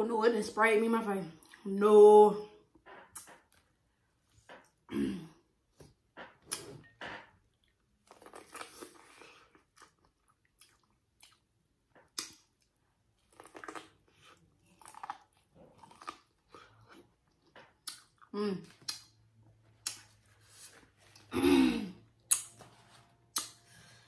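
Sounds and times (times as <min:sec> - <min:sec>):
person chewing corn: 0:07.5 - 0:21.4.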